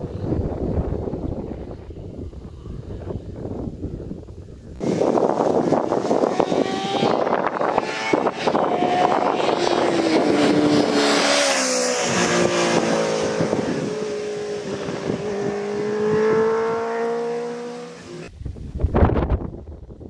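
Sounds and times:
wind buffeting microphone: 0.0s - 20.0s
motorcycle engine passing by: 4.8s - 18.2s.

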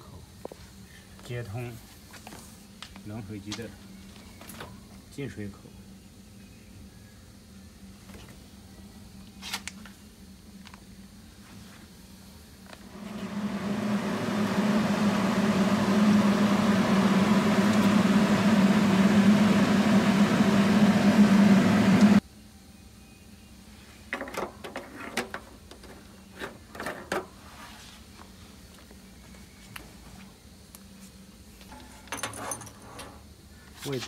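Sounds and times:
pump and fan humming: 12.6s - 22.2s.

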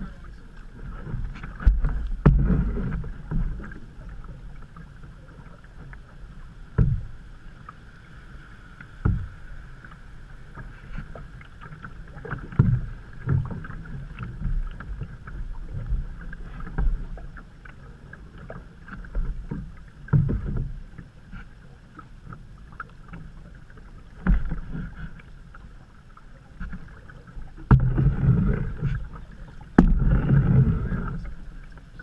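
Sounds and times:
paddle strokes splashing: 0.0s - 32.0s
water rushing along hull: 0.0s - 32.0s
low thumps: 1.1s - 3.7s, 29.7s - 31.3s.

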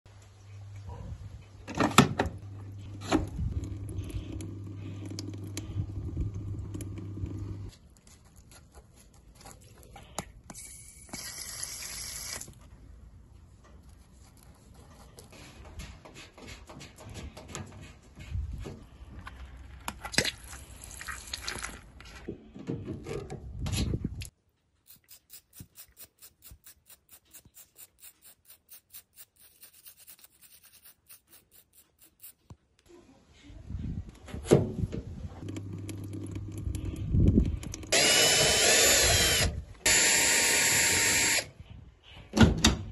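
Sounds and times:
toothbrush scrubbing a mesh filter: 24.9s - 32.5s.

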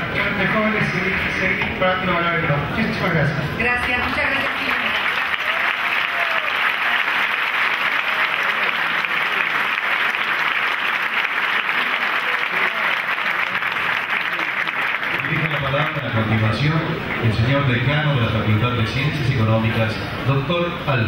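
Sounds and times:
audience applause: 4.1s - 17.3s.

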